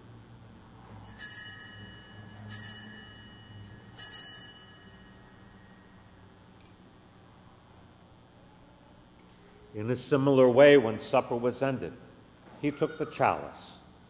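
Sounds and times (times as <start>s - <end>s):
altar bells ringing: 1.0s - 6.2s.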